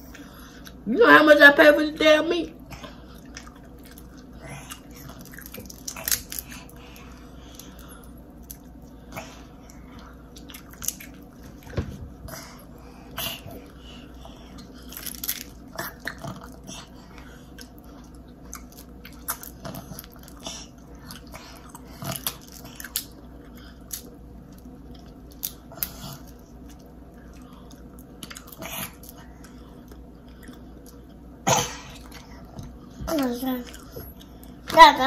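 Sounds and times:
wet chewing and smacks: 2.8s - 6.8s, 9.6s - 11.7s, 14.5s - 31.4s.

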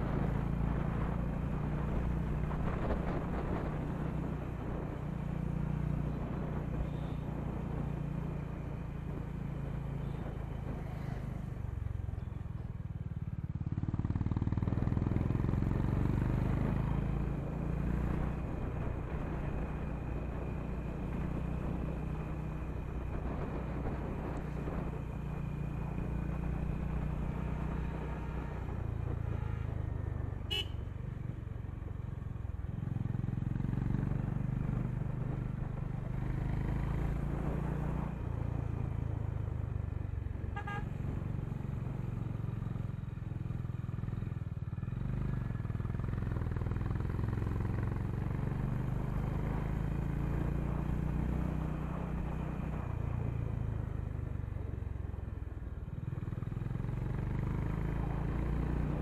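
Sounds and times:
motorcycle engine running: 0.0s - 59.0s
horn beeps: 30.5s - 30.8s.

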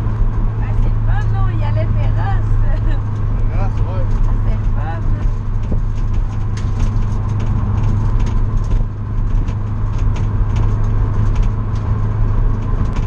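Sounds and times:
car engine running steadily: 0.0s - 13.0s
road and wind noise: 0.0s - 13.0s
short ticks and rattles: 2.9s - 13.0s.

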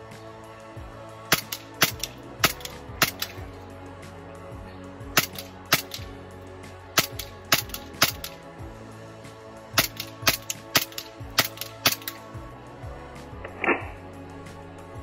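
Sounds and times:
pistol shots: 1.3s - 3.4s, 5.2s - 6.1s, 7.0s - 8.4s, 9.8s - 12.2s.

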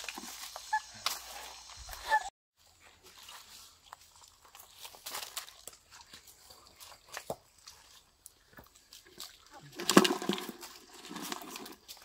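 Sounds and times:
bucket knock and rustle: 9.8s - 12.0s.

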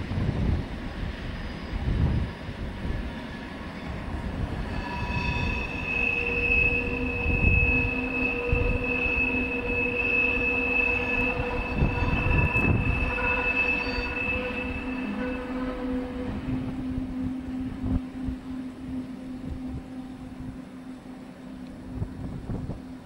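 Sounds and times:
low rumble of train on rails: 0.0s - 23.0s
train wheels squealing: 0.9s - 18.8s.

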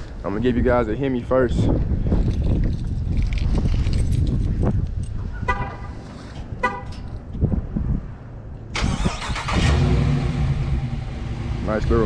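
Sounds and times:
car horn chirps: 5.4s - 6.0s, 6.6s - 7.1s
car engine starting and idling: 8.7s - 12.0s.

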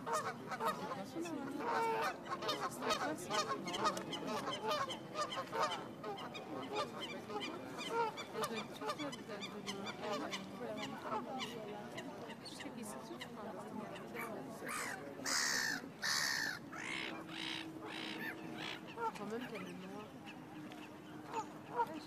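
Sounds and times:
geese honking: 1.6s - 7.2s, 14.7s - 20.4s.

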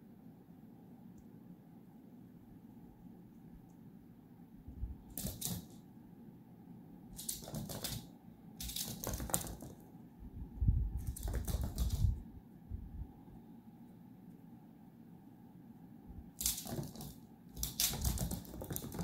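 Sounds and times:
dog claws clicking on wood floor: 5.1s - 5.8s, 7.2s - 9.8s, 11.0s - 12.2s, 16.4s - 19.0s.

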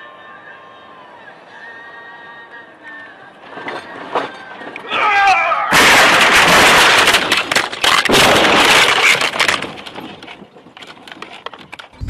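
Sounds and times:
debris clicks and rattles: 3.4s - 5.1s, 5.7s - 12.0s
vehicle crash crashing and scraping: 3.4s - 12.0s.

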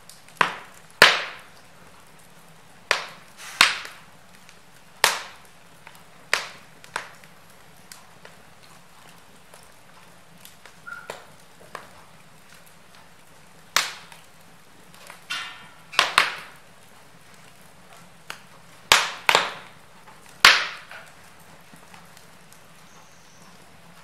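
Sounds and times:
logs popping: 0.0s - 1.7s, 2.8s - 24.0s
fire hissing: 0.0s - 24.0s
wood fire crackling: 0.0s - 24.0s.

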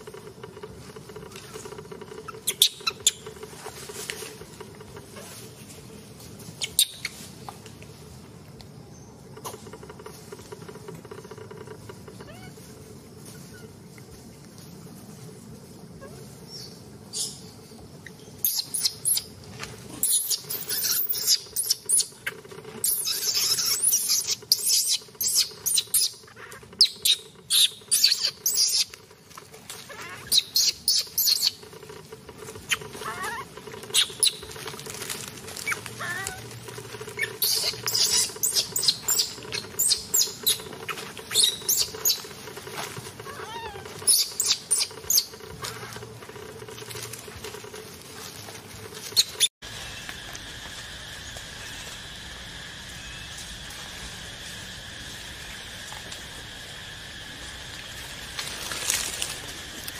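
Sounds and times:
rustling in dry leaves: 0.0s - 59.9s
monkey squeaks: 2.2s - 3.2s, 6.6s - 7.2s, 18.4s - 19.3s, 20.0s - 22.2s, 22.8s - 28.9s, 29.9s - 31.6s, 32.7s - 34.4s, 35.6s - 36.4s, 37.2s - 42.3s, 43.3s - 45.9s.

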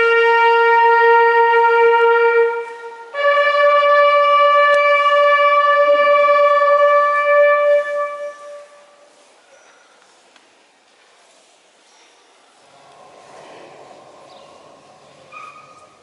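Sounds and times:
bugle long note: 0.0s - 9.0s
faint crowd ambience: 0.0s - 16.0s.

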